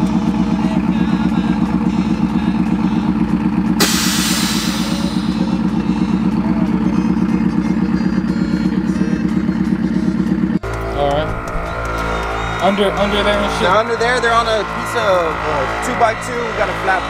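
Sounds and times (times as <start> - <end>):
pickup truck engine idling: 0.0 - 17.0
air suspension hiss: 3.8 - 5.7.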